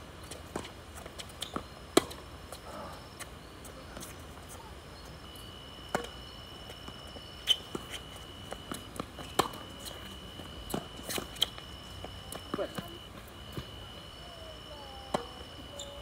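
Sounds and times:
tennis ball hit by rackets: 0:01.5 - 0:02.2, 0:05.9 - 0:06.2, 0:08.6 - 0:09.7, 0:15.1 - 0:15.4
thin high whine: 0:02.0 - 0:16.0
ball bouncing on hard court: 0:08.5 - 0:09.7.

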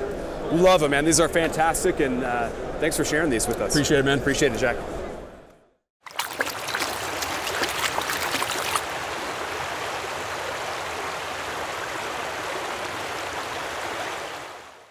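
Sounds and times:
water splashing and dripping: 0:06.0 - 0:14.5
flowing water rushing: 0:06.0 - 0:14.9.

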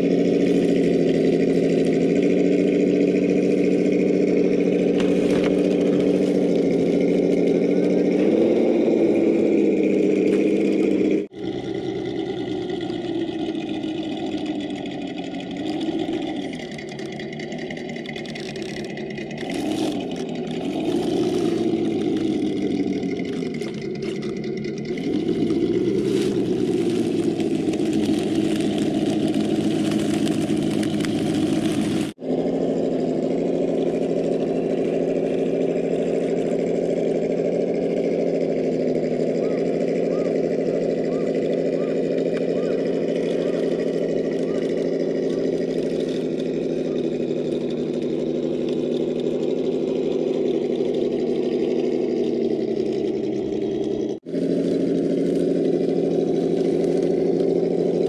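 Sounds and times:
rc car motor humming: 0:00.0 - 0:58.0.

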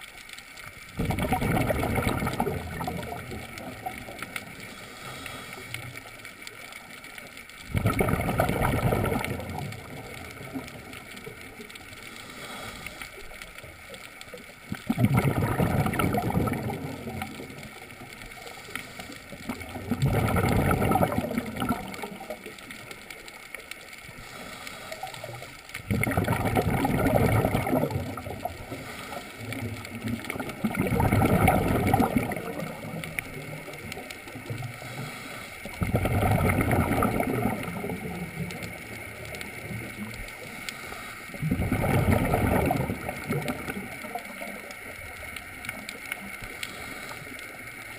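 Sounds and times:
steady water hiss: 0:00.0 - 0:47.9
underwater breathing bubbles: 0:00.8 - 0:47.9.

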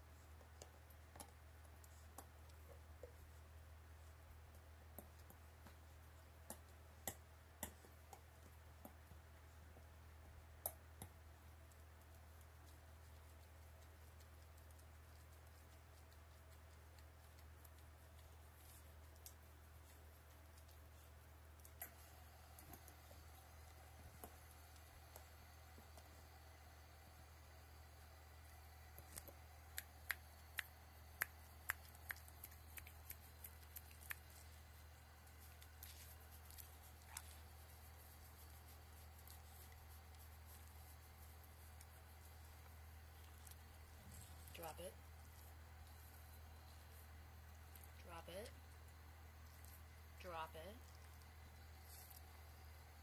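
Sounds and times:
faint low hum: 0:00.0 - 0:53.0
teeth clicking on rubber toy: 0:29.1 - 0:34.6.

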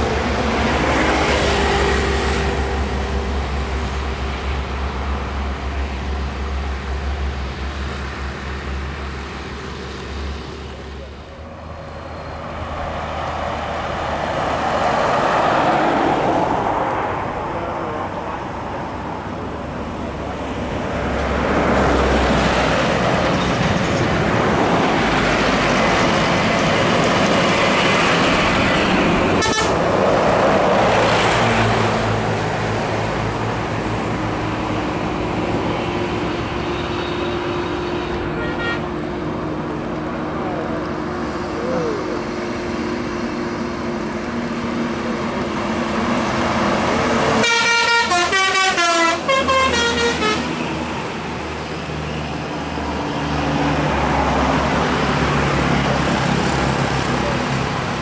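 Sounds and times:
buses and trucks passing at speed: 0:00.0 - 0:58.0
multi-tone bus horn: 0:29.4 - 0:29.9, 0:36.6 - 0:39.2, 0:47.4 - 0:50.7.

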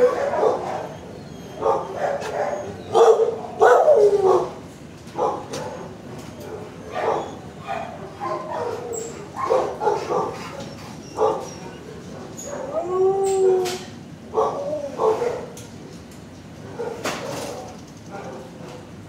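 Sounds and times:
dog whining: 0:00.0 - 0:04.5, 0:06.8 - 0:15.4
dog barking and yipping: 0:00.0 - 0:04.6, 0:05.2 - 0:05.9, 0:06.5 - 0:13.4, 0:14.3 - 0:15.5, 0:16.7 - 0:18.5.

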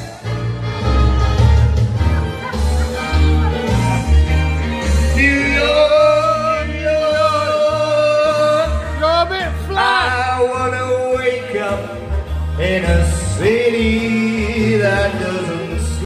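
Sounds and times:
backing track with bass beat: 0:00.0 - 0:16.0
man singing into microphone: 0:04.7 - 0:16.0.

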